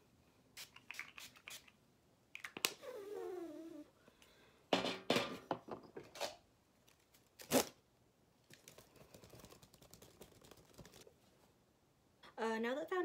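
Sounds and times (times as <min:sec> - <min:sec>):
hand fan fluttering: 0:08.6 - 0:11.1.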